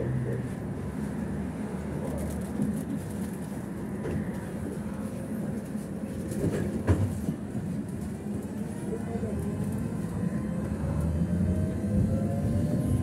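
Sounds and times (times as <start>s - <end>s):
tram hum and rumble: 0.0s - 13.0s.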